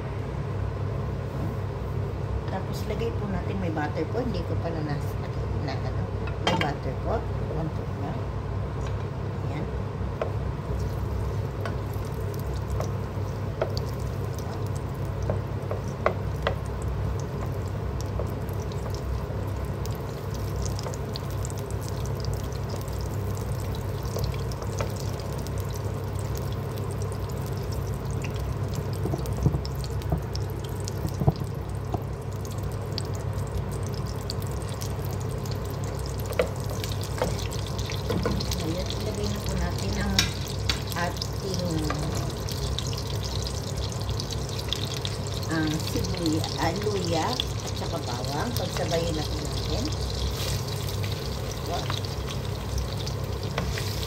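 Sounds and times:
steady low hum: 0.0s - 54.0s
butter sizzling in hot oil: 10.6s - 54.0s
wooden spatula stirring: 10.7s - 22.8s, 35.7s - 42.3s, 45.8s - 54.0s.

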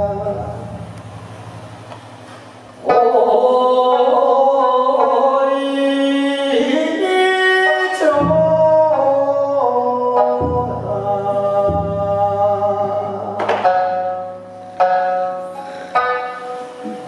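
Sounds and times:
man singing long held notes: 0.0s - 1.0s, 2.8s - 14.0s
deep taiko drum stroke: 10.2s - 14.5s.

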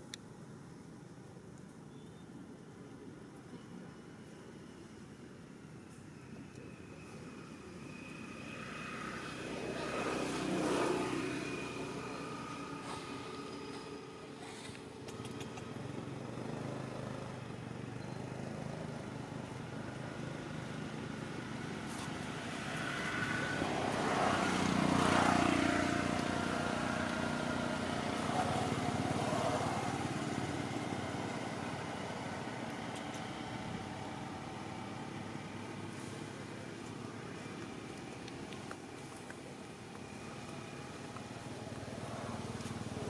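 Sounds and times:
outdoor background hum: 0.0s - 43.0s
vehicle passing: 7.9s - 17.4s, 18.4s - 43.0s.

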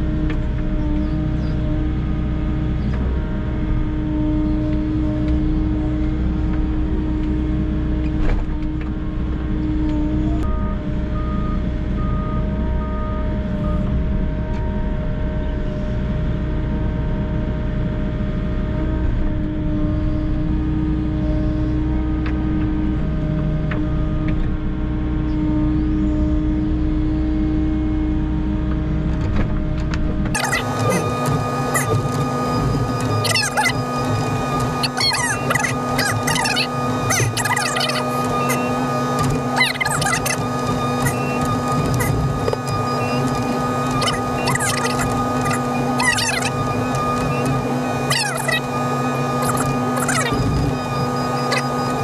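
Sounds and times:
excavator diesel engine: 0.0s - 52.0s
hydraulic whine: 0.0s - 52.0s
beeps: 30.4s - 52.0s.

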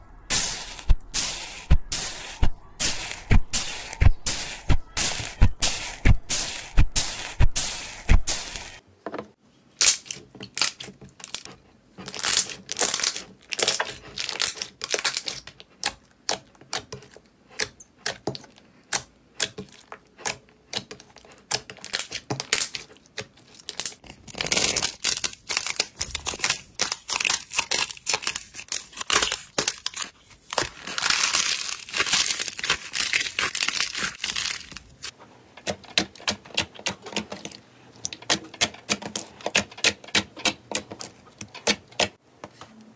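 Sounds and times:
hands squishing slime: 9.8s - 35.1s.

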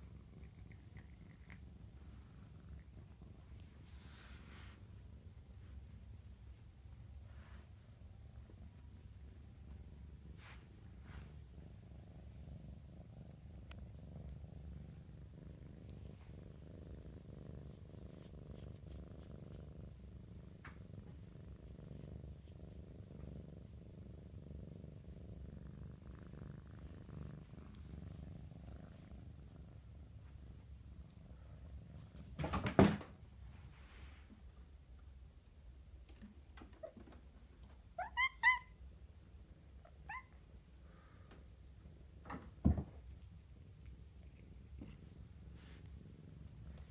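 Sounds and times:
kitten purring: 0.0s - 32.4s, 43.0s - 46.9s
fur rubbing against microphone: 45.0s - 46.8s.

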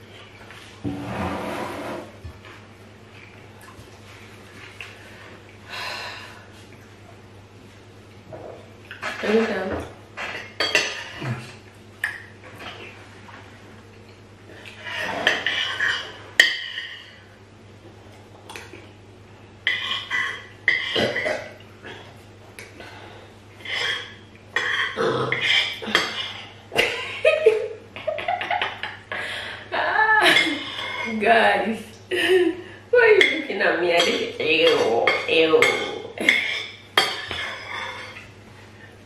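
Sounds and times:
spoon scraping plate: 36.4s - 38.2s.

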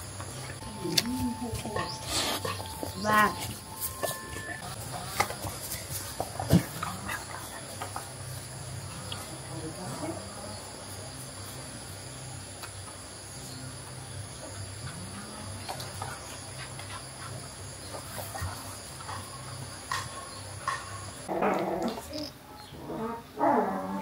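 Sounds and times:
crickets chirring: 0.0s - 22.7s.

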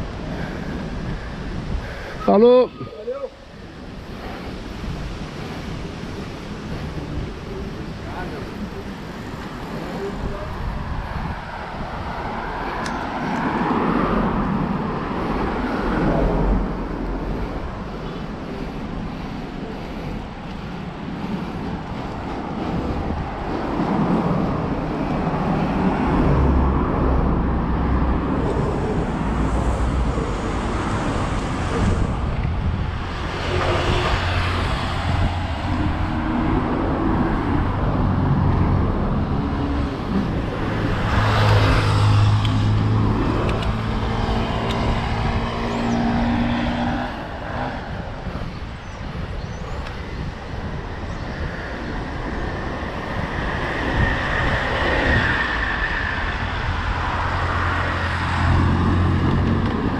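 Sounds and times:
motor vehicles passing: 0.0s - 59.9s.

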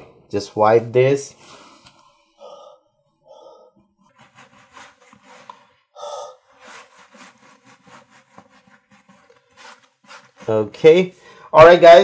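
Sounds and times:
cloth wiping glass: 4.0s - 11.0s.

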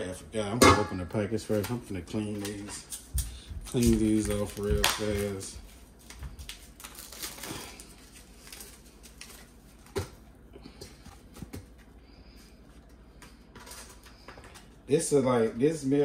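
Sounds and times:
plastic packaging crinkling: 1.4s - 10.3s.

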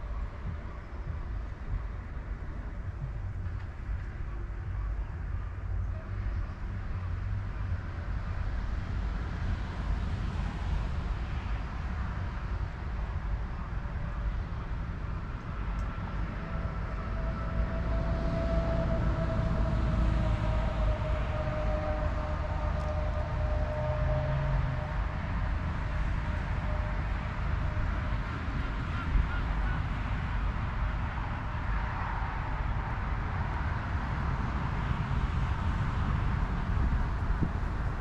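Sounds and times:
low rumble of distant engines: 0.0s - 38.0s
steady whine: 0.0s - 38.0s.

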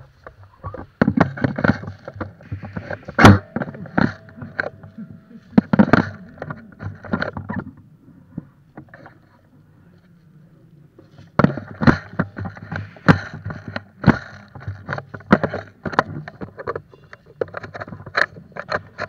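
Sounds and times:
low steady hum: 0.0s - 19.0s
sharp knocks and clatter: 0.7s - 7.8s, 11.1s - 19.0s.

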